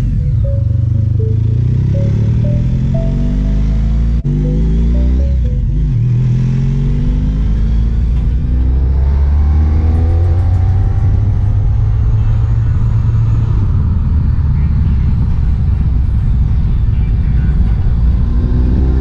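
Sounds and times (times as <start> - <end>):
motorcycle engine accelerating: 0.0 - 19.0.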